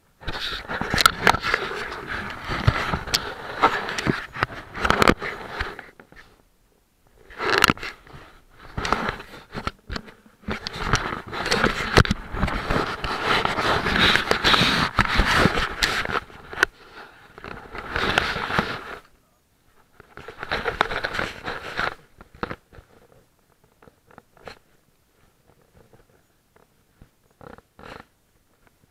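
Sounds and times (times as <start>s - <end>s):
microphone rubbing on clothing: 0.2s - 6.4s, 7.1s - 19.1s, 20.0s - 23.2s.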